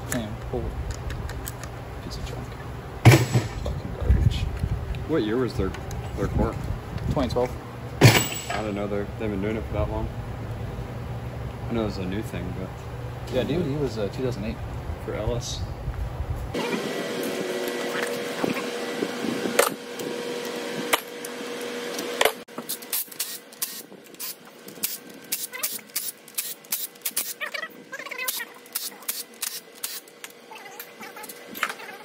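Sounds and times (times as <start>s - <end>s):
steady hum: 0.0s - 31.6s
sharp metal knocks: 8.0s - 8.7s
hand ratchet clicking: 22.7s - 27.4s, 28.2s - 30.1s.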